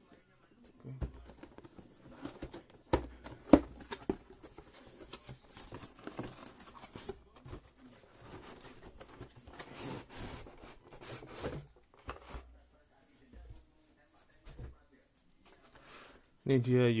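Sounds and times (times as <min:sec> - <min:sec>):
cardboard inserts rustling: 0:01.0 - 0:12.6.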